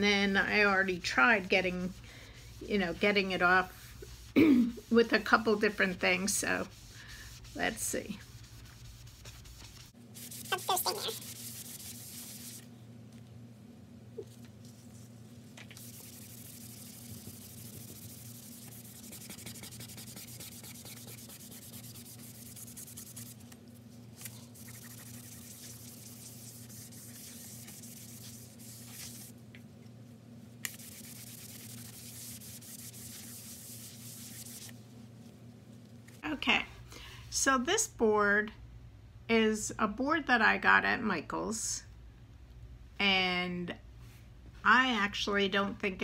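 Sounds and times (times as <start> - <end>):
steady low hum: 0.0 - 46.0
eraser scrubbing on chalkboard: 0.5 - 12.6, 15.8 - 23.5, 24.2 - 29.3, 30.6 - 34.8.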